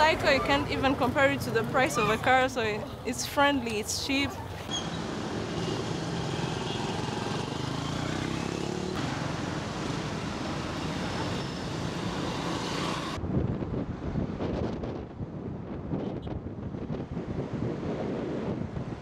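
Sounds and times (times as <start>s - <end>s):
motorcycles and cars passing: 0.0s - 14.6s
wind buffeting microphone: 13.0s - 19.0s.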